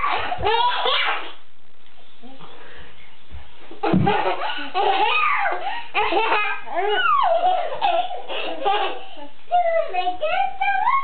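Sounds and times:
baby giggling: 3.8s - 9.3s.

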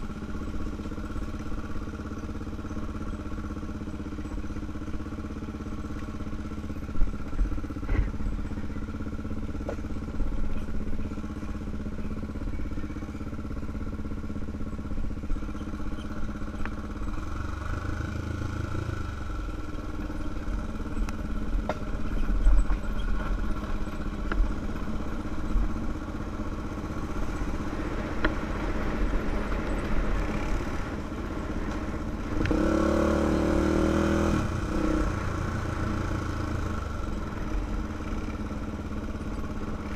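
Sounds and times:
quad engine running: 0.0s - 39.9s.

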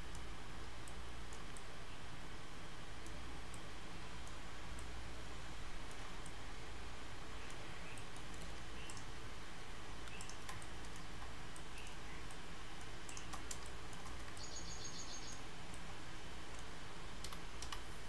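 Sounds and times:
steady low hum: 0.0s - 18.0s
mouse clicks: 0.1s - 1.7s, 7.4s - 9.1s, 10.0s - 17.9s
scroll wheel ticks: 7.4s - 9.1s, 10.0s - 14.5s, 15.7s - 17.8s.

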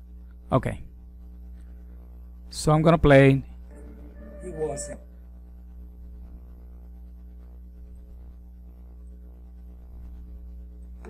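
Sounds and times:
soft ambient music: 2.8s - 6.4s
low hum: 3.4s - 11.0s.

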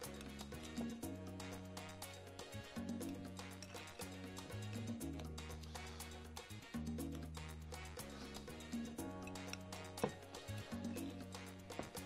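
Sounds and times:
salsa music: 0.0s - 12.0s.

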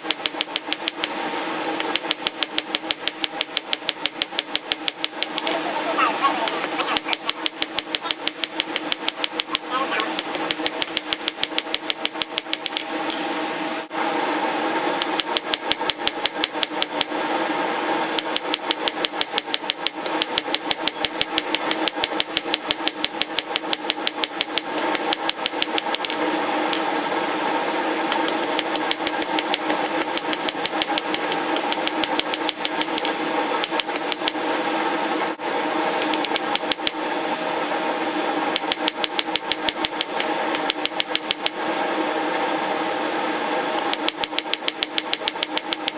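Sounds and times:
hammer striking steel on anvil: 0.0s - 5.6s, 6.4s - 13.2s, 15.0s - 17.1s, 18.2s - 27.0s, 28.1s - 34.4s, 36.0s - 37.0s, 38.6s - 41.6s, 43.8s - 45.9s
steady ringing tone: 6.4s - 12.9s.

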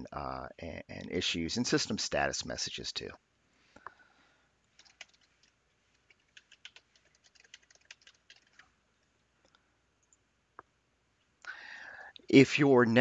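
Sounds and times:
keyboard typing: 4.7s - 8.7s.

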